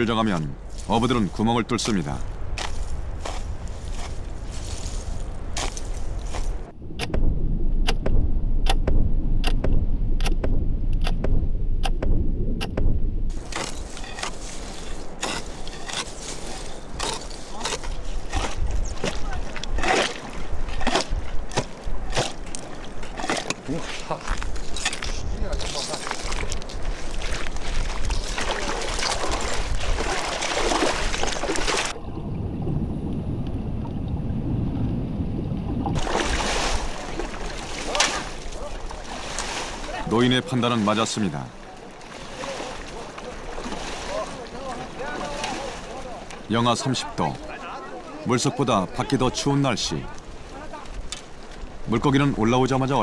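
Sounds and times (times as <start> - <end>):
water splashing and sloshing: 0.0 - 53.0
low rumble: 2.2 - 14.3, 31.9 - 36.2
ice chipping and scraping: 13.4 - 31.9.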